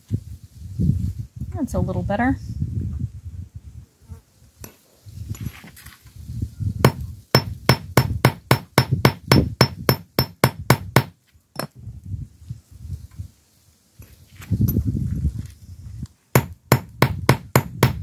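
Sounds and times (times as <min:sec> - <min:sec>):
hammer striking metal rod: 0:06.9 - 0:11.7.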